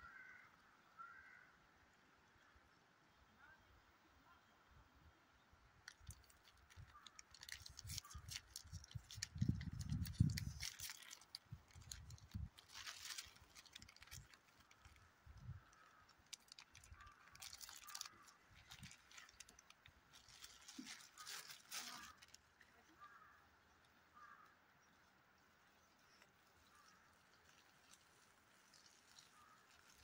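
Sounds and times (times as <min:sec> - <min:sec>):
plastic wrapper crinkling: 0:05.8 - 0:22.5, 0:27.1 - 0:30.0.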